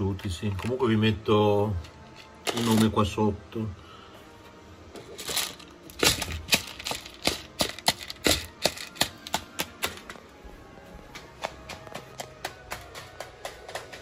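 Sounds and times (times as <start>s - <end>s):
faint background music: 0.0s - 14.0s
sharp clicks and taps: 11.1s - 14.0s.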